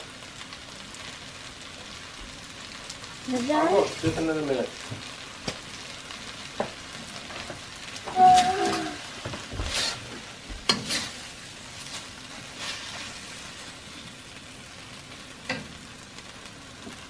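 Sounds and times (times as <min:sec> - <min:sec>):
noodles sizzling in a wok: 0:00.0 - 0:17.0
metal spatula scraping pan: 0:08.1 - 0:13.4.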